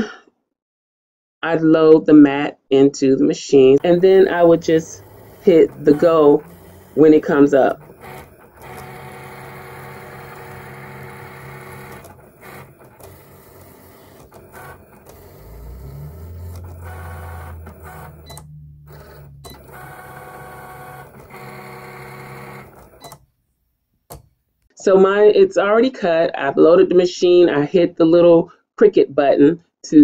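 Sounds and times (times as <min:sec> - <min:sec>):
deeper machine hum: 0:03.8 - 0:23.0
cutting machine motors whirring: 0:03.8 - 0:23.2.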